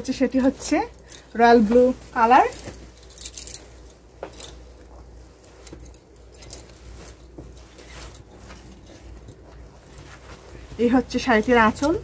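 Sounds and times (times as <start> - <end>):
stiff fabric rustling: 0.0 - 12.0.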